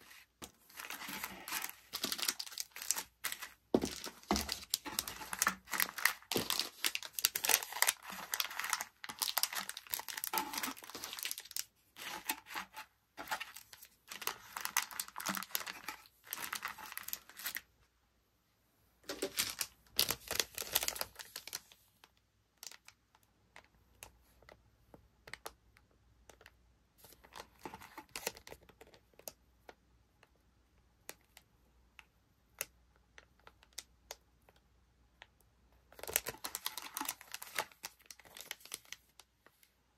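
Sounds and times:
plastic packaging crinkling: 0:00.0 - 0:17.7, 0:19.1 - 0:21.8, 0:35.9 - 0:39.2.

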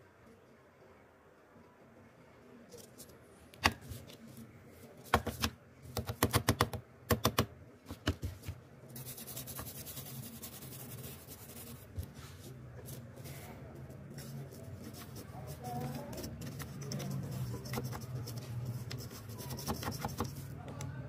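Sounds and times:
toothbrush scratching plastic: 0:14.3 - 0:20.5.

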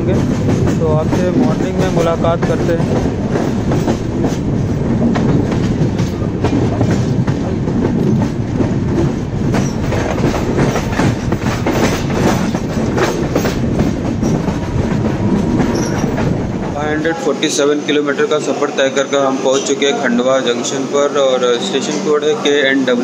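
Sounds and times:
wheels clacking over rail joints: 0:00.0 - 0:17.6
train rumbling: 0:00.0 - 0:23.0.

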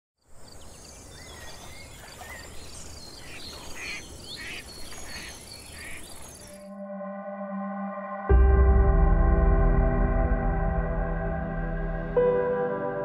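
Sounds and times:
birds calling: 0:00.4 - 0:06.7.

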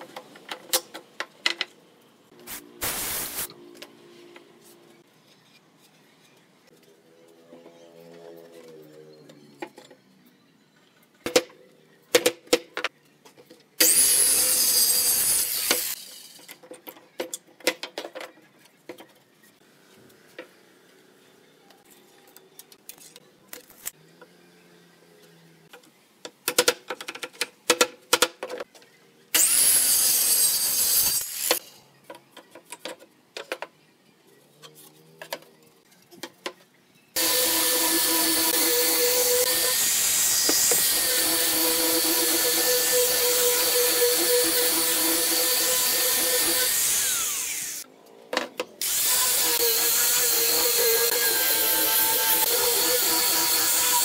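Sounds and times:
power tool bursts: 0:02.5 - 0:03.5
angle grinder whining: 0:37.2 - 0:47.8, 0:48.8 - 0:54.0.

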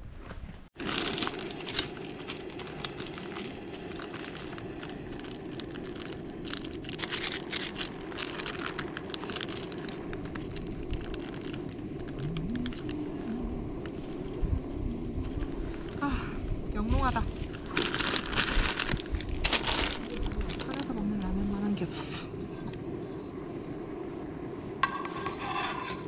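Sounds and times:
crinkling handling noises: 0:00.8 - 0:16.2, 0:17.0 - 0:21.4.

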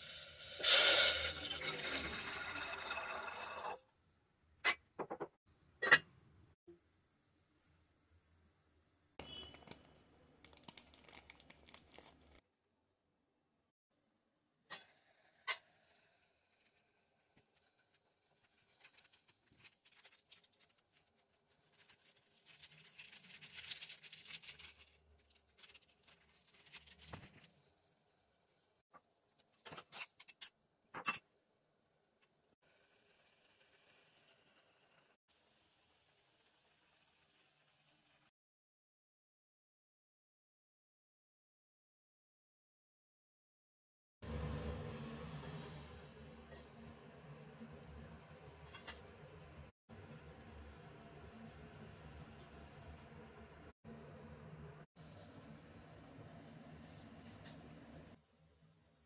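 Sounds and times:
water pouring into metal pot: 0:00.0 - 0:03.8.

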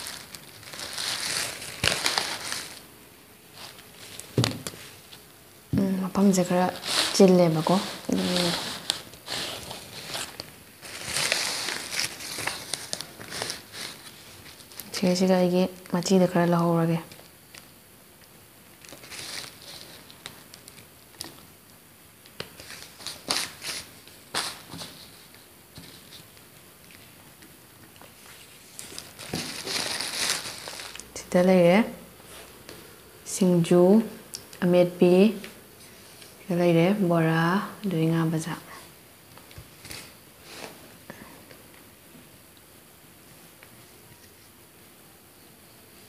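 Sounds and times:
paper crinkling: 0:00.0 - 0:02.9, 0:06.4 - 0:15.2, 0:18.7 - 0:21.4, 0:22.3 - 0:31.2.

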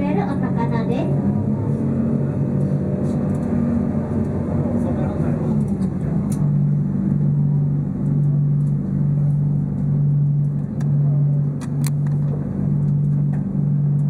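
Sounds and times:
boat engine low hum: 0:00.0 - 0:14.0.

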